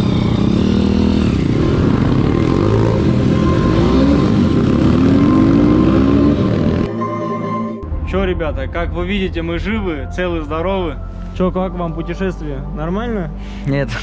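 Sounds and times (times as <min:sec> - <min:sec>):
motorbike engine accelerating: 0:00.0 - 0:07.3.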